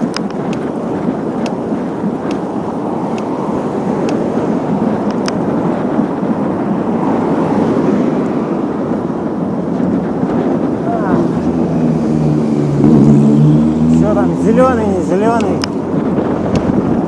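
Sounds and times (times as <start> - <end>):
light sharp ticks: 0.0 - 0.7, 3.1 - 3.3, 5.0 - 5.4, 15.3 - 15.8
tyre noise on asphalt: 0.0 - 17.0
wind buffeting microphone: 0.0 - 17.0.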